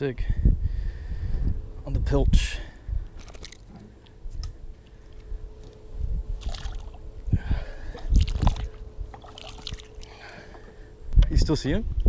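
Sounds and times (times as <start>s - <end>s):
water splashing and sloshing: 3.1s - 4.0s, 5.6s - 7.1s, 7.8s - 10.7s.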